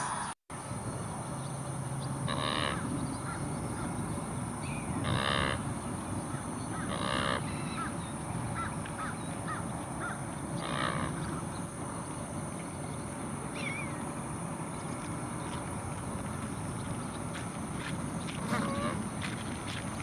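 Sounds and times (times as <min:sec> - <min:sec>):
bird harsh calls: 0:02.1 - 0:12.2, 0:13.5 - 0:14.0.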